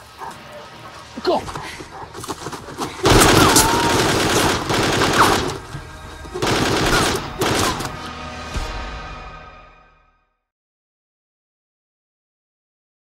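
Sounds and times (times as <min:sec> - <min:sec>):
automatic gunfire bursts: 0:03.0 - 0:05.7, 0:06.4 - 0:07.9.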